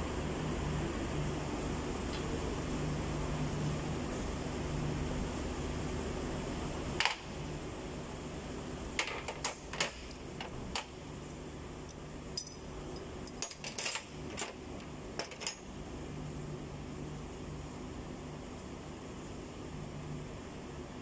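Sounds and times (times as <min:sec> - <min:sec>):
low mechanical hum: 0:00.0 - 0:21.0
metallic clinks of hand tools: 0:12.4 - 0:14.0.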